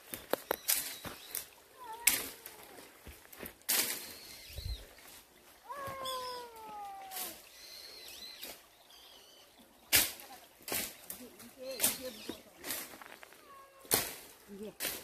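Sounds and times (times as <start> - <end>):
cat meowing: 1.8 - 2.8, 5.7 - 7.4, 13.4 - 14.0.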